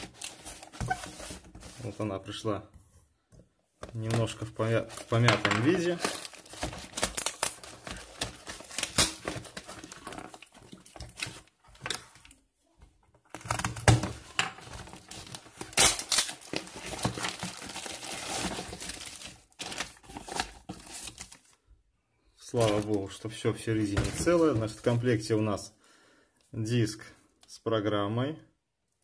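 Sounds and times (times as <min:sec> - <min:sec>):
bubble wrap crinkling: 0:04.0 - 0:11.6, 0:13.3 - 0:21.5
cardboard and mailer tearing: 0:05.9 - 0:11.3, 0:14.9 - 0:21.1.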